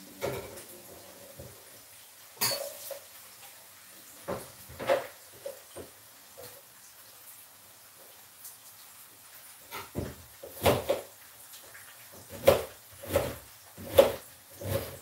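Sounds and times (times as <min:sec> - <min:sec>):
knife chopping on plastic board: 0:10.0 - 0:11.0, 0:12.3 - 0:15.0.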